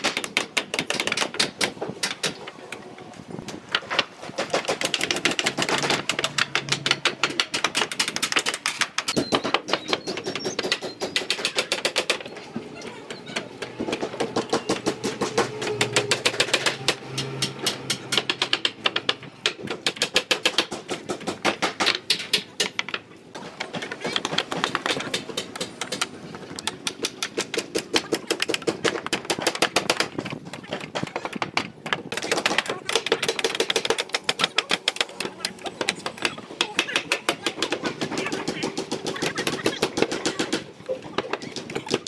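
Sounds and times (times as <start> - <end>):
hammers driving nails into wood: 0.0 - 2.4, 3.8 - 12.2, 13.8 - 23.0.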